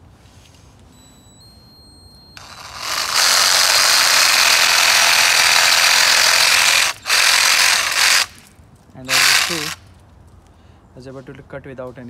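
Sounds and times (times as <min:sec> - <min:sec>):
reciprocating saw cutting wood: 0:02.4 - 0:08.5, 0:09.1 - 0:09.8.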